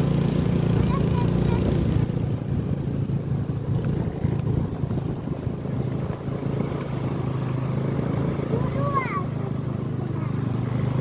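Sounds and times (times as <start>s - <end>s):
scooter engine humming: 0.0s - 11.0s
wind rumbling on microphone: 1.7s - 7.3s.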